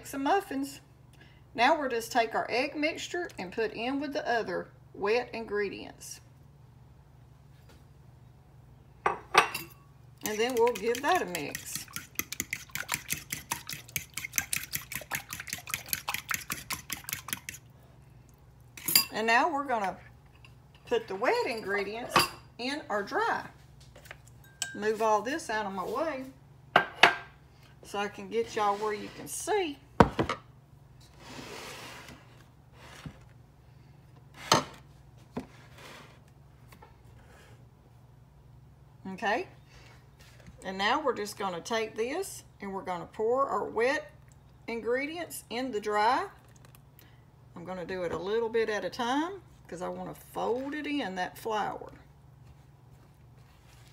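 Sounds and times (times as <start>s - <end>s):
mixing bowls knocking and clattering: 9.1s - 17.7s.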